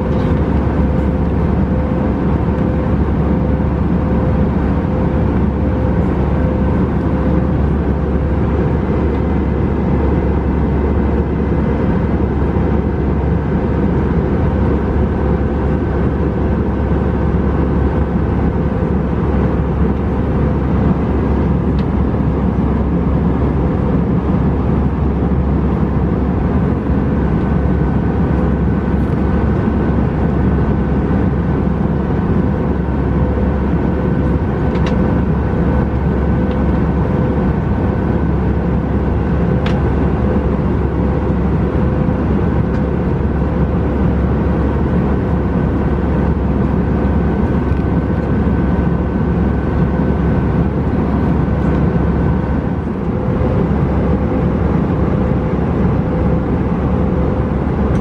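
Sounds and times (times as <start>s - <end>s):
airplane cabin engine and airflow noise: 0.0s - 58.0s.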